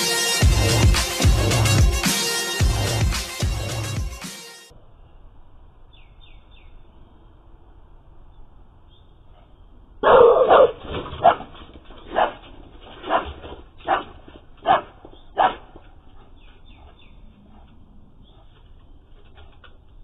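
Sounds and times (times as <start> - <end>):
dog barking: 10.0 - 11.5, 12.1 - 12.4, 13.0 - 15.8.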